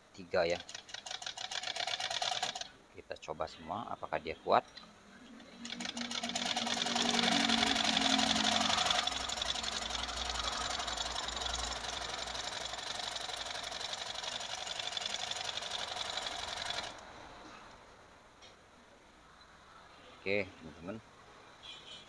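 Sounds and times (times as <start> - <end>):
sewing machine rattling: 0.5 - 2.7, 5.6 - 17.0.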